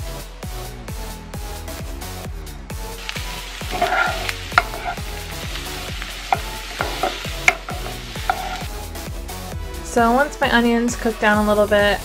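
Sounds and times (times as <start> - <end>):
wooden spoon scraping pan: 3.0 - 8.8
onion sizzling in oil: 3.0 - 9.1.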